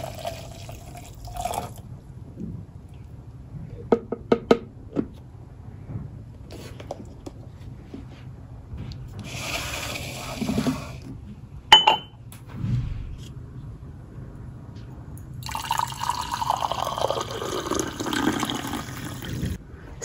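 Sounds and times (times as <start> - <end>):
liquid pouring into glass: 0.0 - 1.8, 15.4 - 19.6
glass clink: 11.7 - 12.2.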